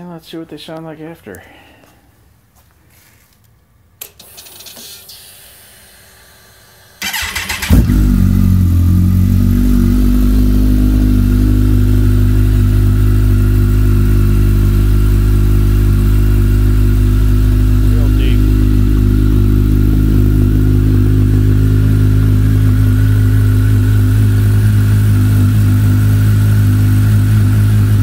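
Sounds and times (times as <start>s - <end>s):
motorcycle starter cranking: 7.0s - 8.3s
motorcycle engine idling: 7.0s - 28.0s.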